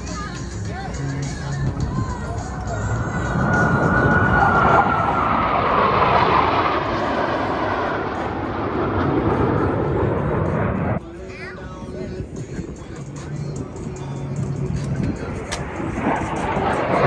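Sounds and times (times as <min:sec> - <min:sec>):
jet roaring past: 0:01.7 - 0:11.0, 0:13.6 - 0:17.0.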